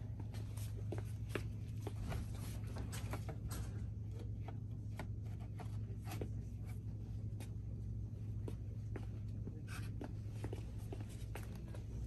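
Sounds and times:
shop interior hum: 0.0s - 12.0s.

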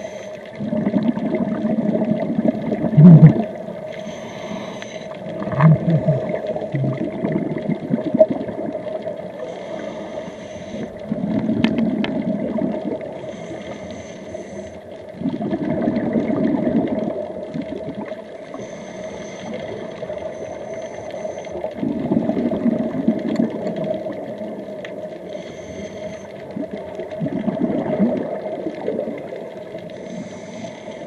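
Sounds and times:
regulator inhalation hiss: 0.0s - 0.5s, 3.8s - 5.3s, 9.4s - 11.2s, 13.2s - 15.0s, 18.5s - 21.6s, 25.2s - 26.4s, 29.9s - 31.0s
exhaled bubbles rushing: 0.6s - 3.8s, 5.2s - 9.4s, 11.0s - 13.2s, 15.1s - 18.2s, 21.7s - 24.8s, 26.4s - 29.8s.

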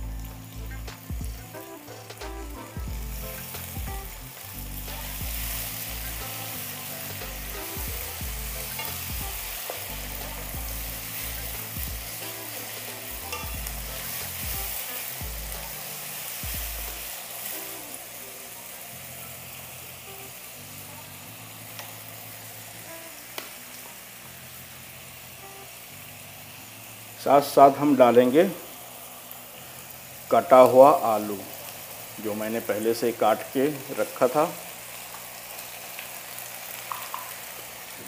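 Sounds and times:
vegetables sizzling in hot oil: 0.0s - 38.0s.

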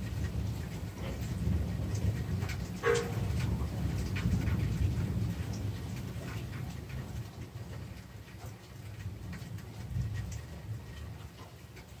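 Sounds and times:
distant thunder rumble: 0.0s - 7.8s.

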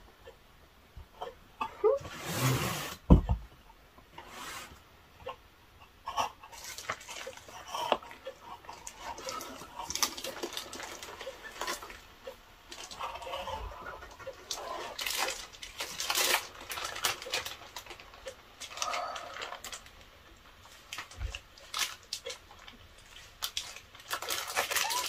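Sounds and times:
thump: 3.1s - 3.4s
packaging rustling and scraping: 6.6s - 8.0s, 8.8s - 12.0s, 12.7s - 20.0s, 20.6s - 25.0s.

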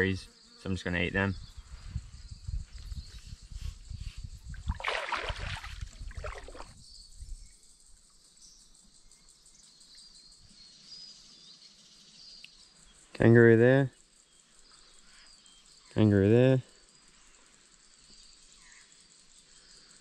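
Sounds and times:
paddle splashing water: 4.6s - 6.8s.

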